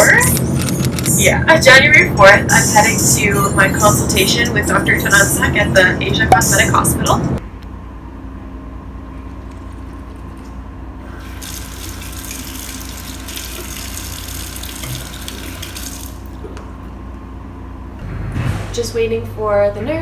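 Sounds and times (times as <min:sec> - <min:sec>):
steady low hum: 0:00.0 - 0:20.0
tap water running into basin: 0:11.2 - 0:16.4.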